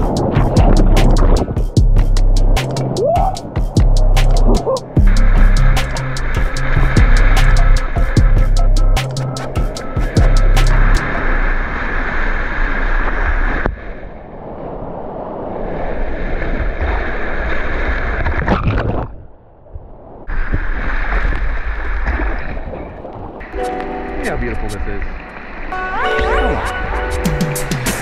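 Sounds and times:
whitewater rushing: 23.4 - 28.0.

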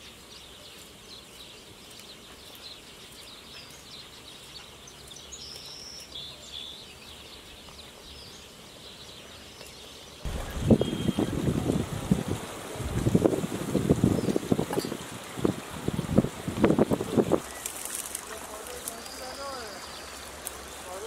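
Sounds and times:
small birds chirping: 0.0 - 21.0
held whistled bird notes: 10.3 - 11.4
wind rush on microphone: 10.3 - 18.4.

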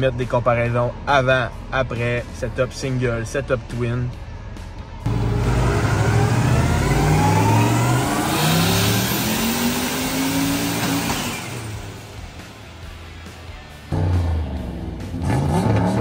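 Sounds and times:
car engine revving at full throttle: 5.1 - 12.9, 13.8 - 16.0.

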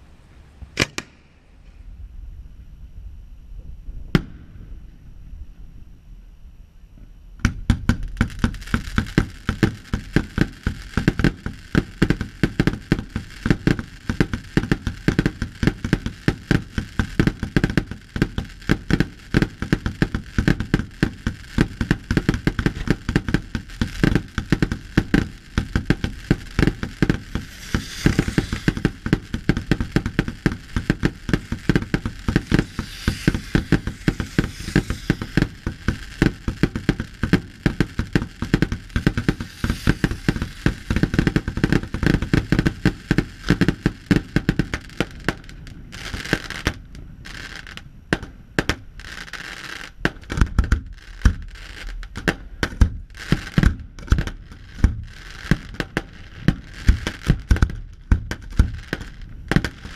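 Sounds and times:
firework shells bursting: 7.4 - 46.8
fireworks crackling: 7.4 - 59.9.

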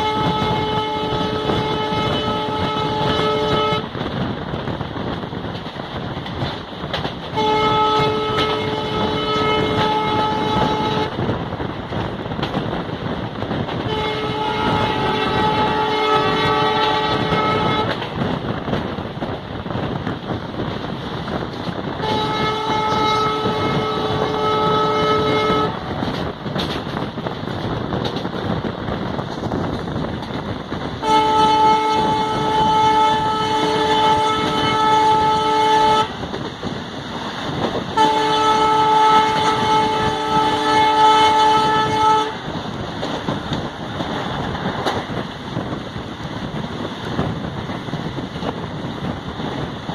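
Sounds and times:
locomotive air horn blasts: 0.0 - 3.9, 7.3 - 11.2, 13.8 - 18.0, 22.0 - 26.0, 31.0 - 36.2, 37.9 - 42.5
train rumbling on rails: 0.0 - 49.9.

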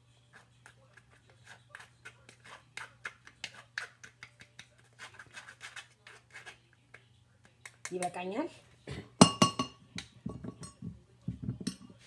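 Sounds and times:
spoon scraping wire-mesh strainer: 4.8 - 6.6.

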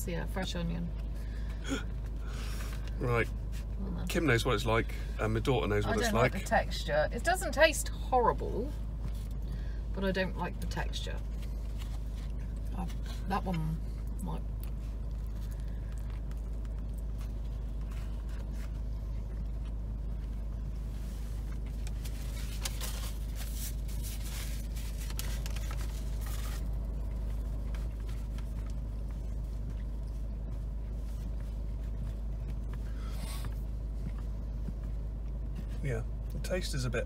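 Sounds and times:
car engine idling: 0.0 - 37.0
paper napkin rustling: 20.9 - 32.8.

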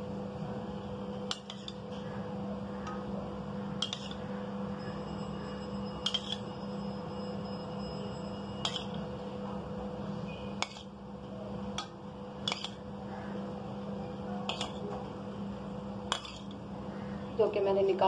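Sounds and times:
steady low hum: 0.0 - 18.0
metal spoon clinking against bowl: 1.3 - 1.8, 3.8 - 4.3, 4.9 - 6.7, 8.2 - 9.1, 10.5 - 11.0, 11.7 - 12.9, 14.4 - 14.9, 16.1 - 16.6.

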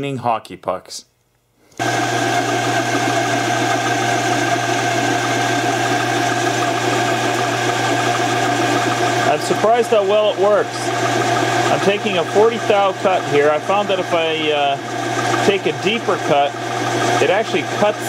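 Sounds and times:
metal lathe humming and whining: 1.8 - 18.0.

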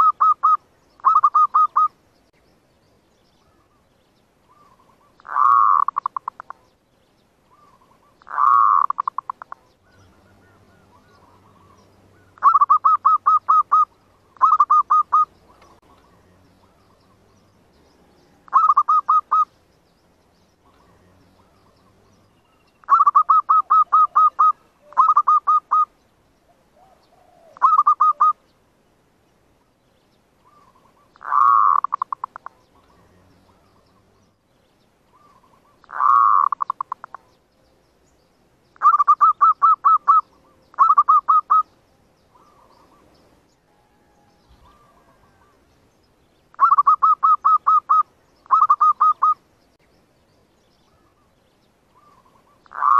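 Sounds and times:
dove cooing in staccato bursts: 0.0 - 2.0, 4.5 - 6.7, 7.5 - 17.3, 18.3 - 19.6, 22.8 - 28.4, 30.4 - 34.2, 35.1 - 37.4, 38.8 - 41.7, 42.3 - 43.2, 43.8 - 45.7, 46.6 - 49.4, 52.0 - 52.9.

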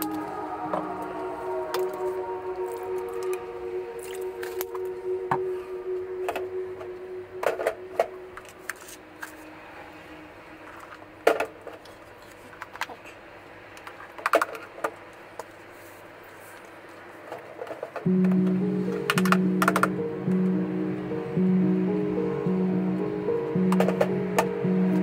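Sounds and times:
steady low tone: 0.0 - 11.3, 18.0 - 25.0.

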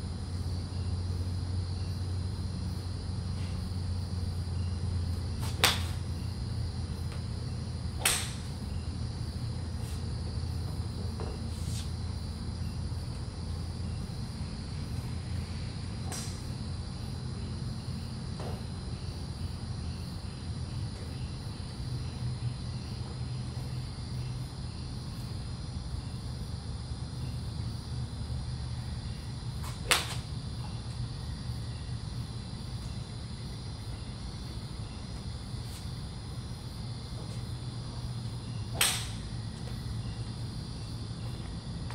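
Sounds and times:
steady low hum: 0.0 - 41.9
golf iron striking ball: 5.4 - 6.0, 8.0 - 8.5, 16.0 - 16.5, 38.7 - 39.3.

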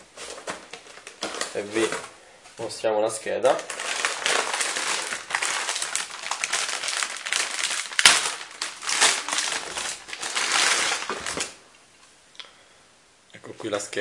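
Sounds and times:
packaging rustling and crinkling: 0.0 - 2.2, 3.5 - 11.6.

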